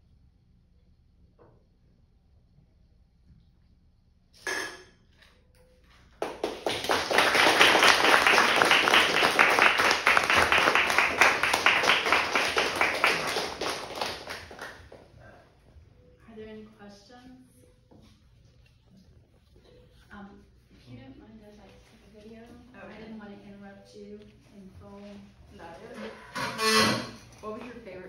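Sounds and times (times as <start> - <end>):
small audience applauding: 6.1 - 15.2.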